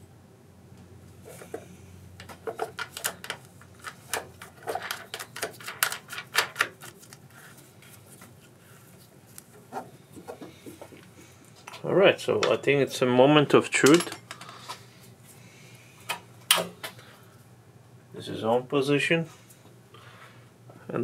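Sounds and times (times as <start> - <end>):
tools and parts clicking and knocking: 2.2 - 6.9, 13.8 - 14.8.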